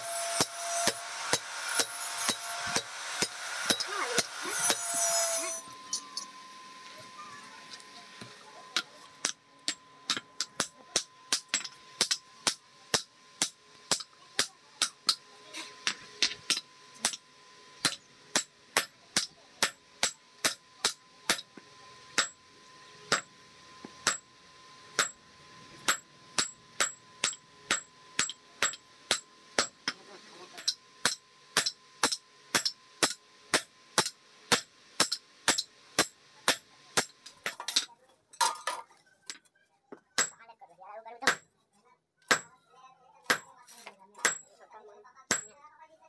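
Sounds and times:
hammer striking hot iron: 0.0 - 6.3, 8.2 - 22.4, 23.1 - 24.3, 24.9 - 25.2, 25.8 - 38.6, 40.2 - 40.4, 41.2 - 41.5, 42.3 - 42.6, 43.2 - 43.6, 44.2 - 44.5, 45.3 - 45.5
anvil ringing: 0.0 - 6.4.

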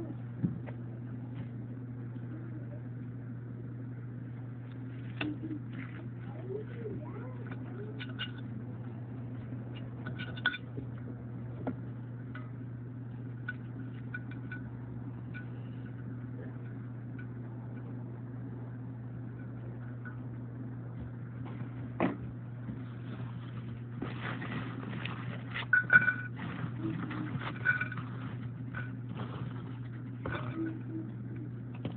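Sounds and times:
steady low hum: 0.0 - 31.9
clatter of dishes: 10.0 - 10.7.

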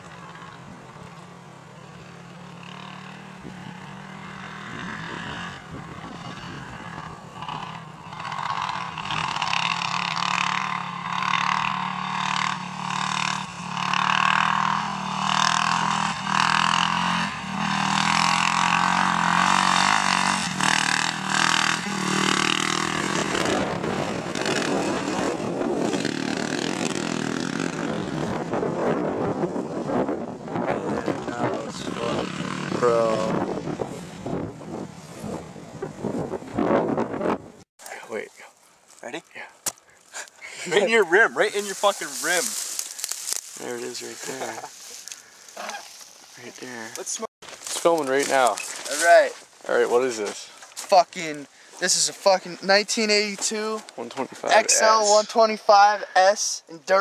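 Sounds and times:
noisy rush: 0.0 - 37.6
quad engine revving: 1.9 - 37.4.

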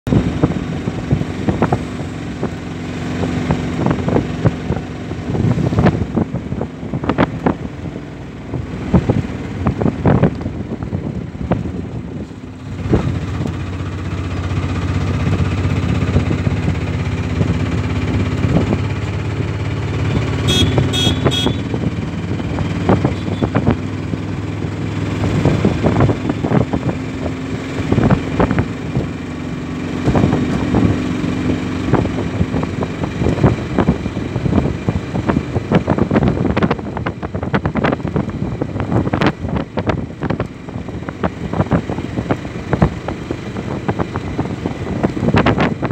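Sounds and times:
small vehicle engine running: 0.1 - 45.9.

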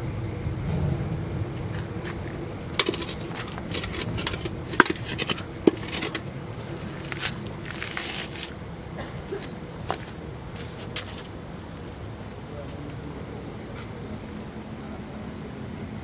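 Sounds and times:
night insects trilling: 0.0 - 16.0
hand handling clicks and knocks: 2.8 - 6.3.

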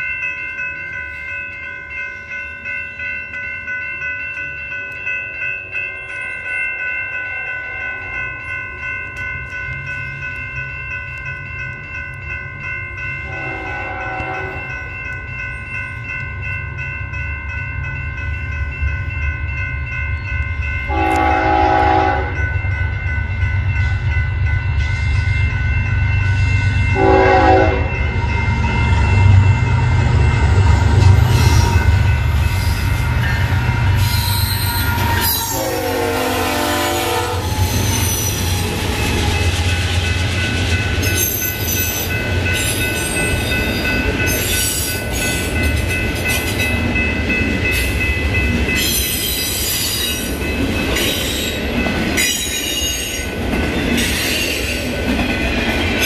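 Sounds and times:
crossing bell ringing: 0.0 - 56.0
engine and train rumble: 7.6 - 56.0
locomotive air horn blasts: 13.3 - 14.6, 20.9 - 22.4, 27.0 - 27.9, 35.0 - 37.5.

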